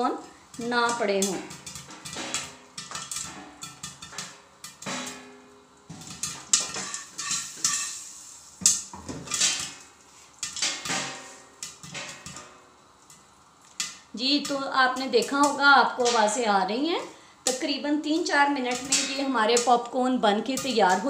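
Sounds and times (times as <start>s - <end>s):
popcorn popping in pot: 0.0s - 21.0s
pot rattling and scraping: 0.5s - 5.1s, 5.9s - 16.4s.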